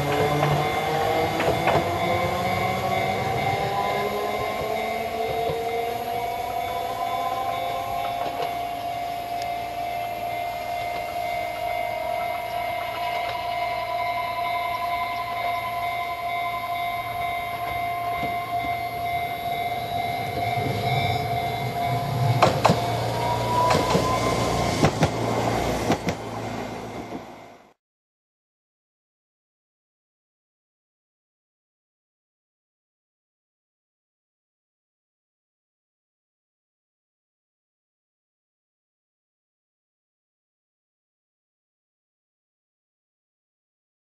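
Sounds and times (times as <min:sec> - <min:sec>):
wheels clacking over rail joints: 0:00.0 - 0:06.2, 0:17.2 - 0:27.4
tram electric whine: 0:00.0 - 0:27.8.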